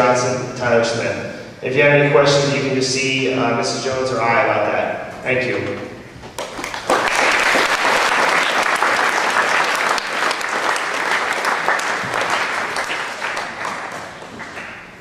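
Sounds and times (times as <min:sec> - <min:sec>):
audience clapping in echoing hall: 0:06.4 - 0:15.0.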